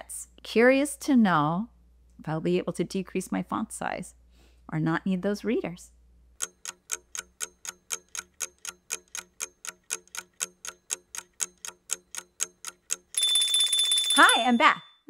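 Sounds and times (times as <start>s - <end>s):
clock ticking: 6.4s - 14.9s
alarm ringing: 13.0s - 15.0s.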